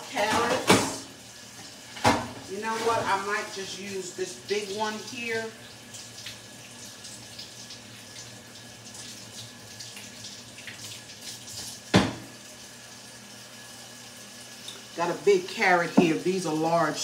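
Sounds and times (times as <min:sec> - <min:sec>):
tap running into steel sink: 0:11.9 - 0:12.3, 0:15.9 - 0:16.2.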